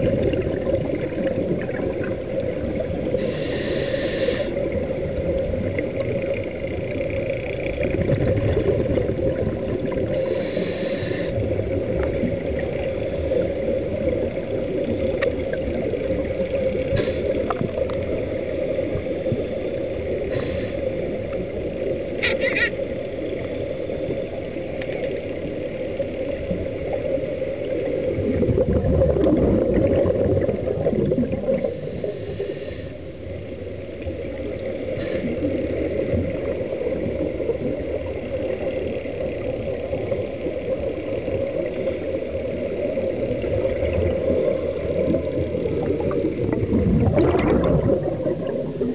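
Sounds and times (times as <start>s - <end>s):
regulator bubbles hissing and gurgling: 0.0s - 48.9s
underwater low drone: 0.0s - 48.9s
faint clicks: 24.8s - 25.2s.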